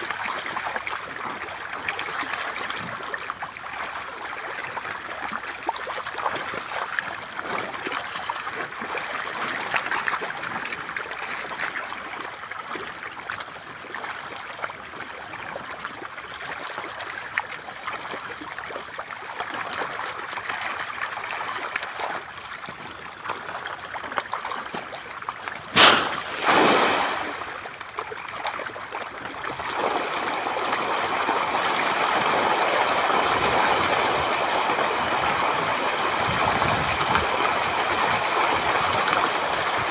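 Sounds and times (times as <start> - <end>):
fish splashing in shallow water: 0.0 - 39.9
loud tail hit on water: 25.7 - 27.5.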